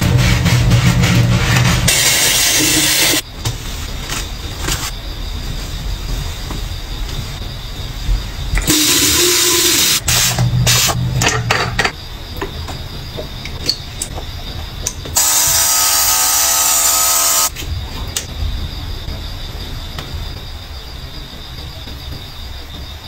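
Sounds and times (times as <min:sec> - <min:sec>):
mist sprayer hissing: 0:01.9 - 0:03.2, 0:08.6 - 0:11.0, 0:15.2 - 0:17.5
compressor motor whine: 0:08.6 - 0:11.2, 0:15.2 - 0:17.5.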